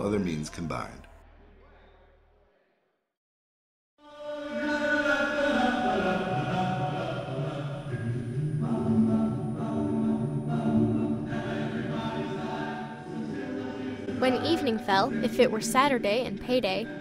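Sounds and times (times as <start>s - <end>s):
choir singing in harmony: 4.0s - 17.0s.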